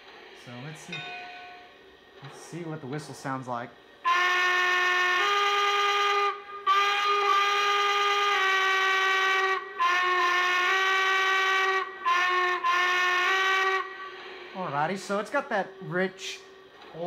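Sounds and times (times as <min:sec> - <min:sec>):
steam whistle blasts: 0:04.0 - 0:14.7.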